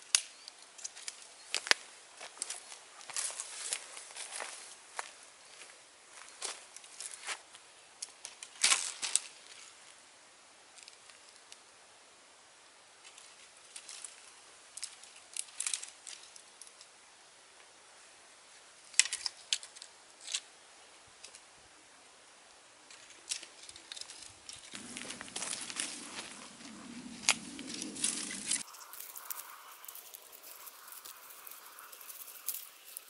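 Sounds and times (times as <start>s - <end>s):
dry twigs clicking and rustling: 0.1s - 7.2s, 8.0s - 9.7s, 13.0s - 16.9s, 18.9s - 20.5s, 22.9s - 33.0s.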